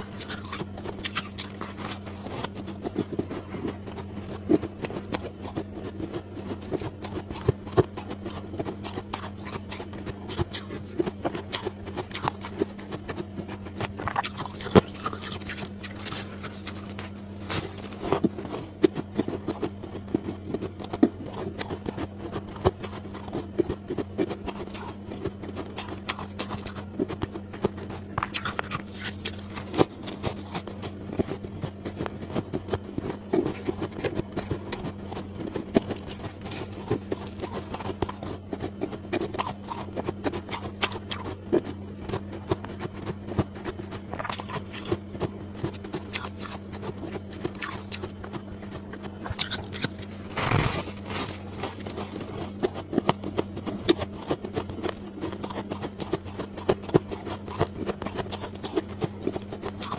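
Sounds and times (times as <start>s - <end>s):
ice crunching: 49.8s - 52.3s.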